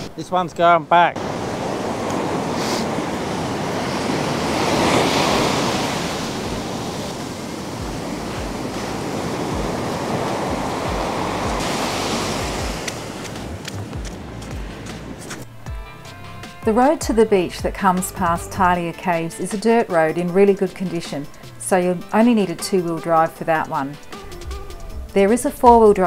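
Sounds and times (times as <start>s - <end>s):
surf breaking on beach: 1.2s - 15.4s
wind buffeting microphone: 1.2s - 15.5s.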